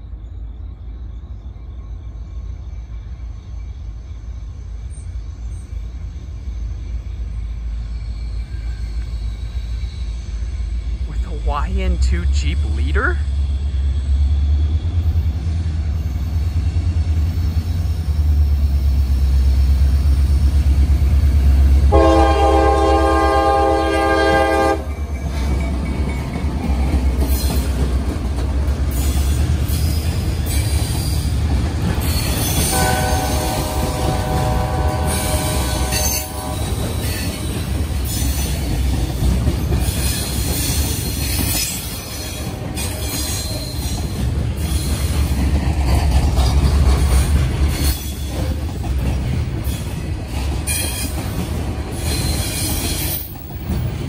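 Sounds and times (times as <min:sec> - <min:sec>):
diesel locomotives rumbling: 0:00.0 - 0:54.0
train air horn blasts: 0:21.9 - 0:24.9, 0:32.7 - 0:36.9.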